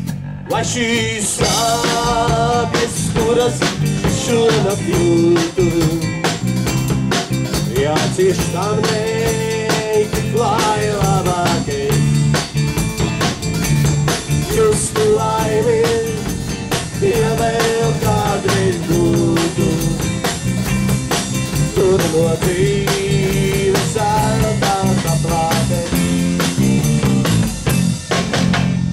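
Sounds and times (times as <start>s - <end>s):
drum kit beat: 0.0s - 28.9s
electric guitars: 0.0s - 28.9s
live band playing: 0.0s - 28.9s
walking bass: 0.0s - 28.9s
gliding lead melody: 11.5s - 18.0s.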